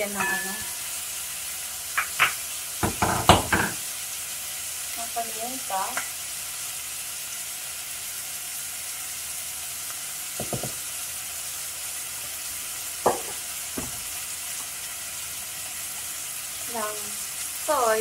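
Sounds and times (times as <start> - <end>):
chicken sizzling in a frying pan: 0.0 - 18.0.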